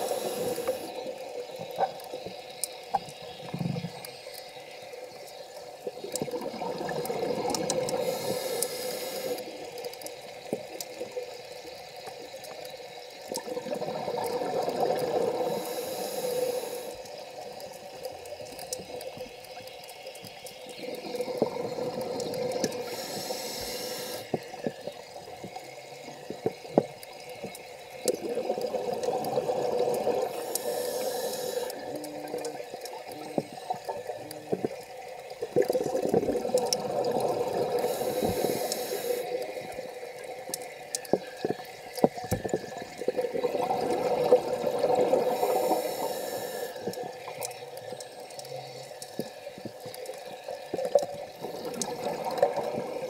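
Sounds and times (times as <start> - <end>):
diver breathing through regulator: 0.0 - 1.0, 7.9 - 9.4, 22.8 - 24.4, 30.3 - 31.9, 37.8 - 39.4, 45.2 - 46.9
exhaled bubbles rushing: 6.2 - 8.3, 13.4 - 15.6, 20.8 - 22.9, 28.1 - 30.5, 35.4 - 38.6, 42.5 - 46.0, 50.4 - 53.0
small clicks: 15.6 - 36.8.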